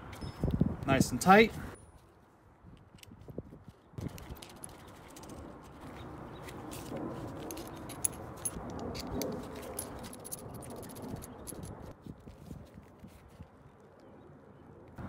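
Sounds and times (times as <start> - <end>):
handling rustle: 1.5 - 14.1
small metal parts clinking: 4.0 - 5.8, 7.4 - 11.9.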